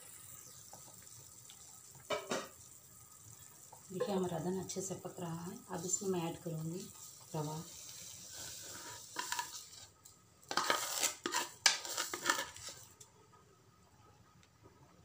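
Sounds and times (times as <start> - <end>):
spatula scraping pan: 6.9 - 13.0.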